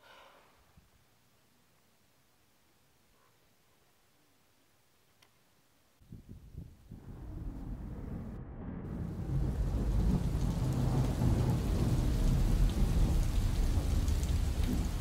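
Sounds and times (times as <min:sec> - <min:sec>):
deep rumble: 0:06.4 - 0:15.0
rain-like rushing noise: 0:06.9 - 0:15.0.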